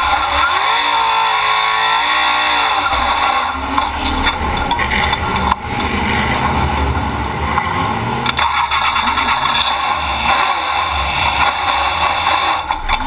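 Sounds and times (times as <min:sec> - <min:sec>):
cabin and road noise: 0:00.0 - 0:13.0
race car engine running loud: 0:00.0 - 0:13.0.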